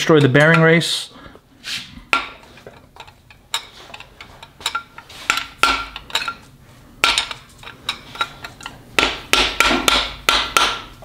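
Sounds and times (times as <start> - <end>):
screwdriver clinking and scraping metal: 2.4 - 6.5, 7.1 - 8.8.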